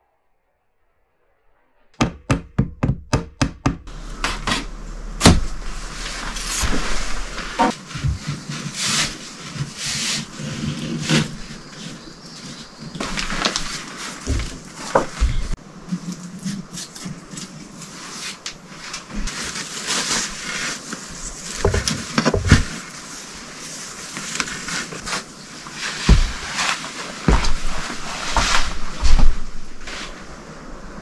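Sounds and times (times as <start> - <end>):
sharp knocks: 2.0 - 5.6
cloth curtain rustling: 5.5 - 11.6, 17.8 - 30.4.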